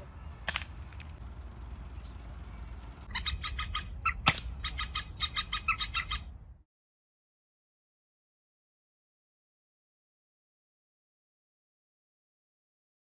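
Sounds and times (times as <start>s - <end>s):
birds chattering: 0.0s - 6.3s
air rifle shot: 4.2s - 4.5s.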